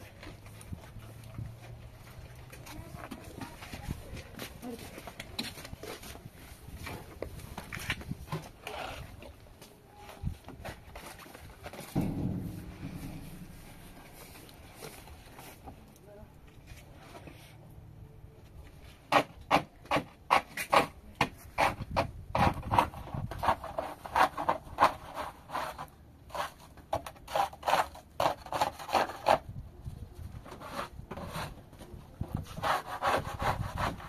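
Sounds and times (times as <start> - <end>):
scraping strokes: 11.0 - 15.8.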